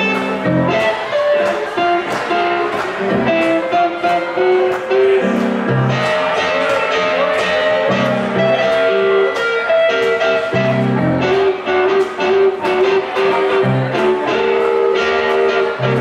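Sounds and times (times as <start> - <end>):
electric guitar: 0.0 - 16.0
keyboard: 0.0 - 16.0.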